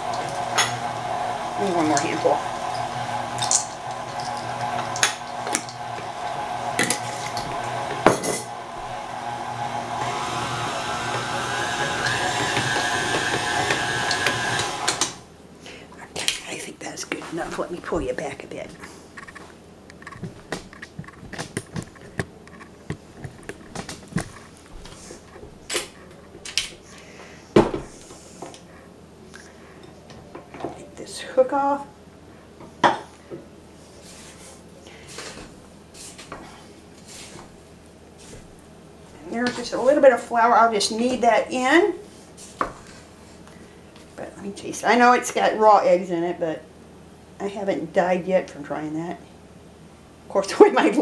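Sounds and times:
stand mixer running: 0.0s - 15.3s
stand mixer head clicking: 11.1s - 15.2s.

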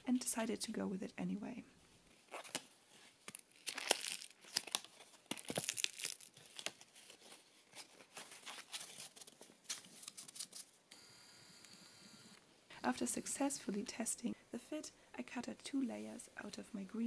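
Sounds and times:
stiff fabric crinkling: 2.1s - 10.6s.

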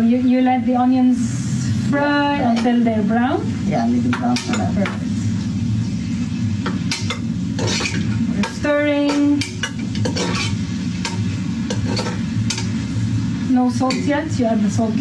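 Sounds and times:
onions frying in oil: 0.0s - 15.0s
metal spoon scraping pot: 6.9s - 8.2s, 9.0s - 12.7s.

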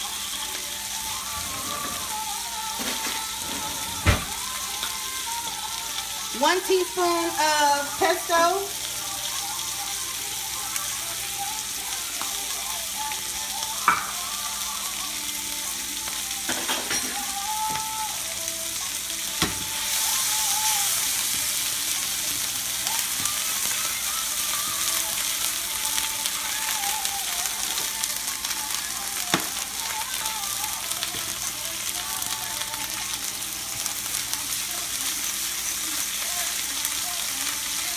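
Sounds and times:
steak sizzling in a skillet: 0.0s - 37.9s.

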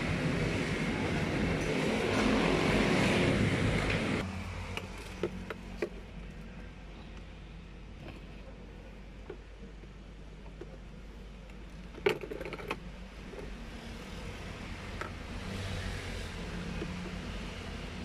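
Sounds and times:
metal tools clinking and rattling: 12.0s - 12.8s.

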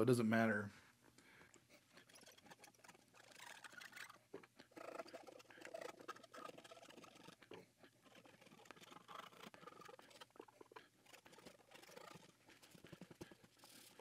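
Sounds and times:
cotton swab scrubbing circuit board: 2.0s - 4.2s, 4.8s - 7.5s.

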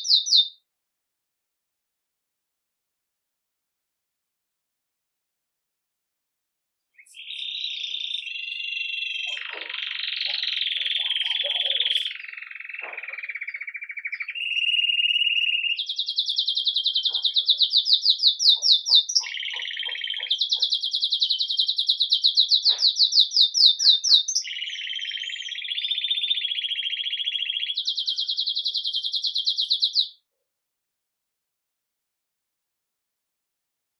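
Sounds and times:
canary singing trills: 0.0s - 0.5s, 7.0s - 30.2s.

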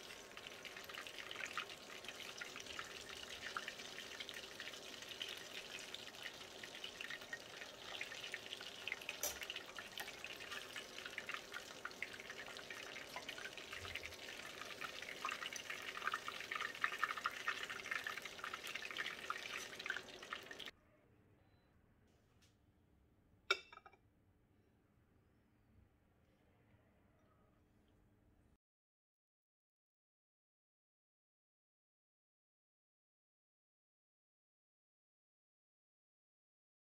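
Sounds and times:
deep-frying sizzle in oil: 0.0s - 20.7s.

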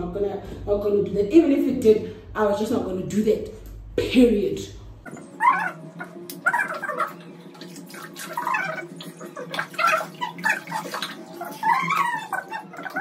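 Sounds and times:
water pouring and splashing: 6.8s - 13.0s.

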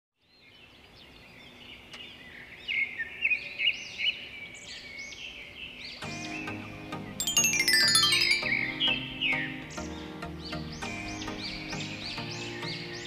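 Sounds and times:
birds chirping and twittering: 0.2s - 13.0s
music: 6.0s - 13.0s.

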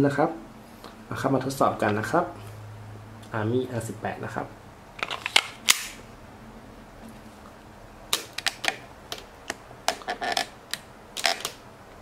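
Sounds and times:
hard objects clicking and tapping: 8.1s - 11.6s.

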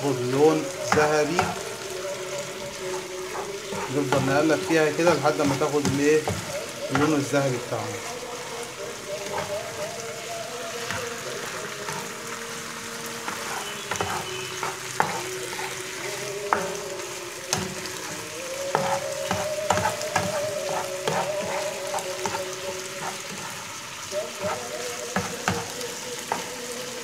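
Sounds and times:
chicken sizzling in oil: 0.0s - 27.0s
spatula scraping a pan: 0.4s - 26.6s
spatula knocking against pan: 5.4s - 7.2s.

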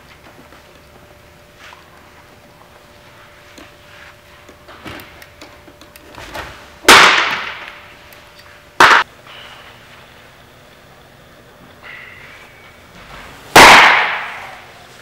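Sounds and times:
sharp pop: 13.6s - 14.5s.

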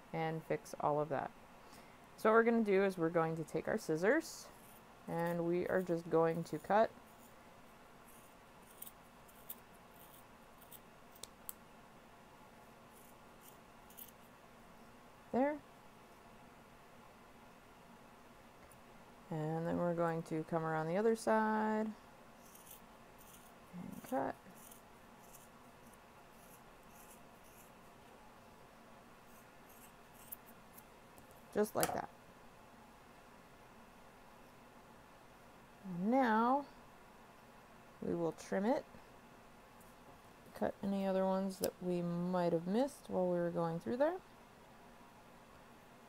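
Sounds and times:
scissors snipping yarn: 8.2s - 11.6s, 13.0s - 14.2s, 22.4s - 27.7s, 29.7s - 30.4s.

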